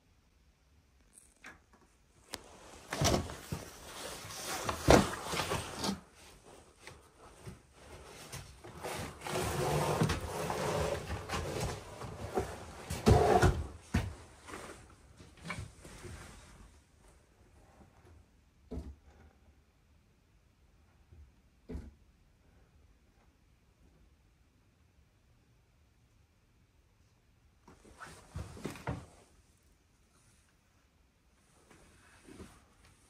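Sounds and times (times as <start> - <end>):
wood scraping and creaking: 7.4 - 14.8.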